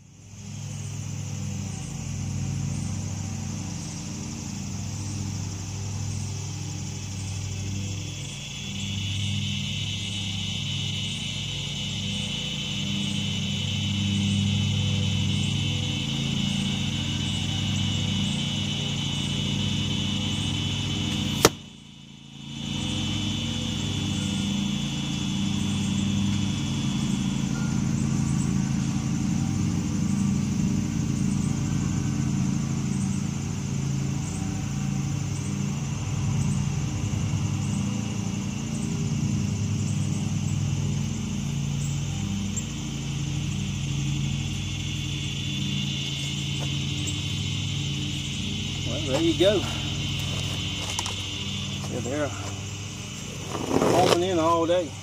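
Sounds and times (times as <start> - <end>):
low engine-like hum: 0.0 - 55.0
arrow hitting foam target: 21.3 - 21.6.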